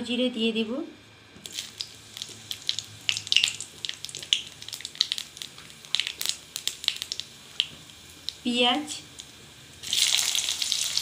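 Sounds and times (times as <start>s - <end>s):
spices spluttering in hot oil: 1.4s - 11.0s.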